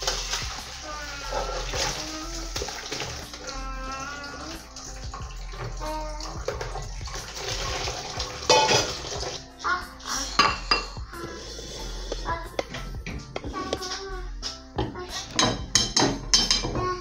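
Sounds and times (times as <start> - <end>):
water running: 0.0 - 17.0
metal pot clattering: 6.5 - 9.4, 10.3 - 11.1, 12.1 - 14.0, 14.8 - 17.0.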